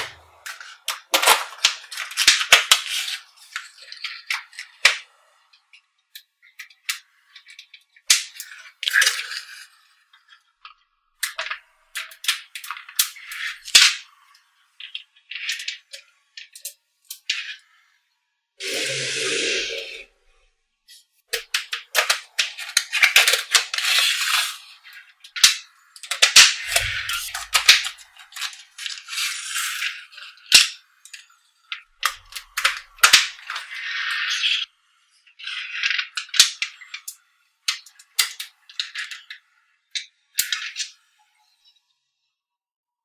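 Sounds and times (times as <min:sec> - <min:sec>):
magnetic balls clicking and rattling: 0:25.2 - 0:34.7.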